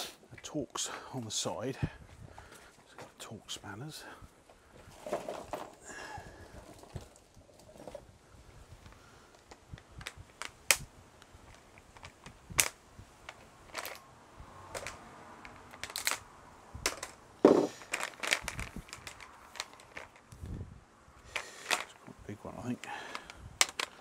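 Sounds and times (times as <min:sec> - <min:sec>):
loud knock: 0:17.4 - 0:17.7.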